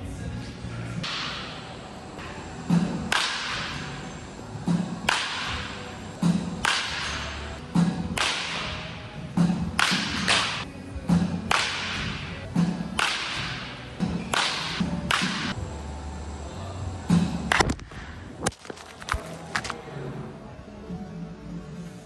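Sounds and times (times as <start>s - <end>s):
bat striking baseballs: 1.0s - 15.6s, 17.0s - 19.8s.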